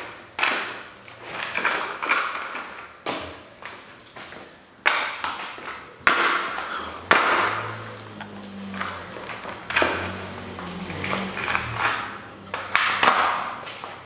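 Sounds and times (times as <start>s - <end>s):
plastic toy cracking and creaking: 0.0s - 3.8s, 8.7s - 14.0s.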